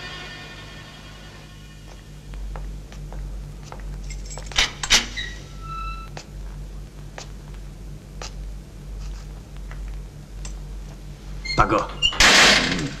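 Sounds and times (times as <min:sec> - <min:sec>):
low steady hum: 0:00.0 - 0:13.0
slow footsteps on hard floor: 0:01.4 - 0:04.6, 0:06.0 - 0:11.4
steel gate clanking open: 0:04.6 - 0:06.1, 0:11.5 - 0:13.0.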